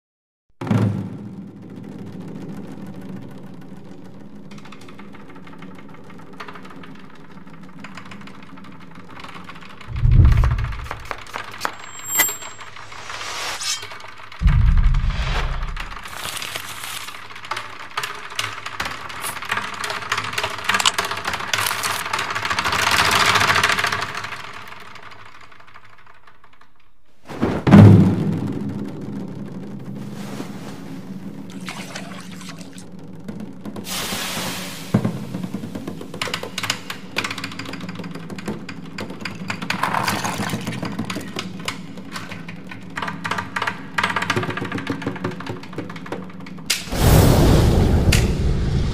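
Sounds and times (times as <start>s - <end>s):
steady low drone: 9.9s - 11.2s, 14.4s - 16.6s
dried chili pieces rattling: 16.0s - 17.4s, 20.7s - 22.4s
hiss: 33.9s - 36.8s, 46.8s - 48.9s.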